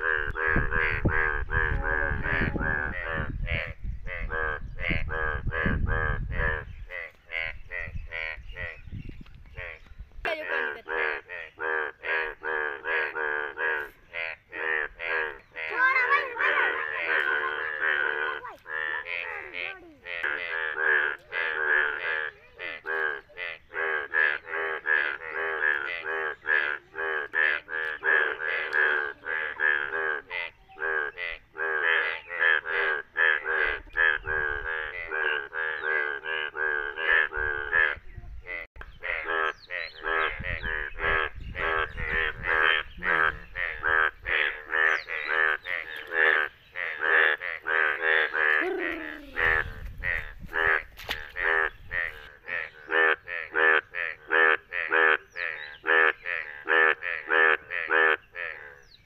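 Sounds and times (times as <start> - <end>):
frogs croaking in chorus: 0.0 - 59.0.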